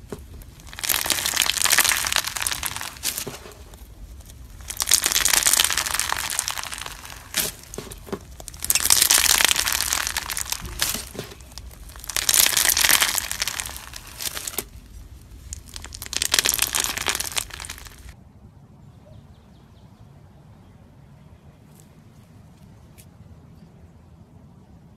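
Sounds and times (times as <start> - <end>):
foam-bead slime crackling: 0.0 - 18.2.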